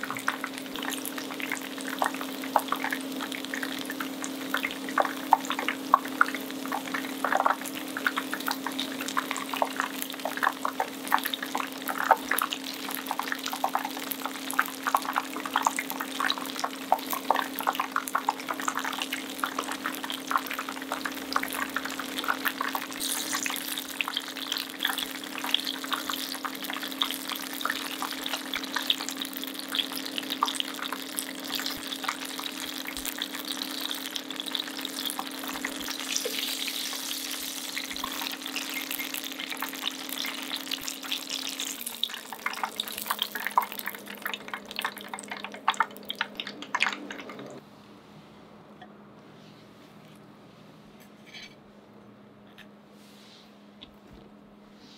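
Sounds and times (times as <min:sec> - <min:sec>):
deep-frying crackle and sizzle: 0:00.0 - 0:47.6.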